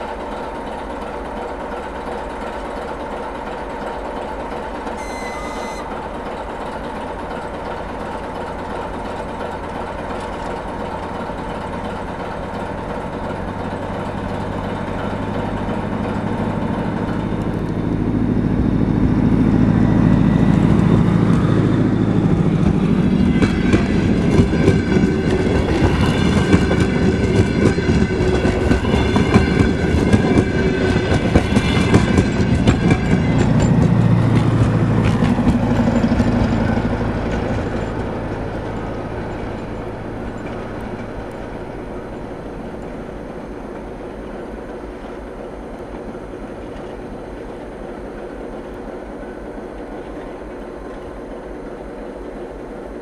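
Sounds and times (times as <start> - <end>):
train wheels clacking over joints: 0.0 - 43.1
diesel engine drone: 3.6 - 47.1
high ringing from running gear: 5.0 - 6.1, 35.6 - 42.6.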